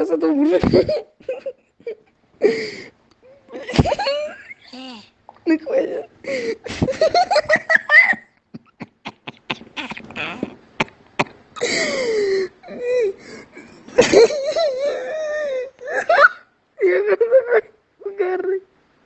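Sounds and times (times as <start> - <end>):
wheezing gasps for breath: 2.4 - 3.0, 11.6 - 13.8
man laughing uncontrollably: 6.6 - 11.0, 13.9 - 15.3.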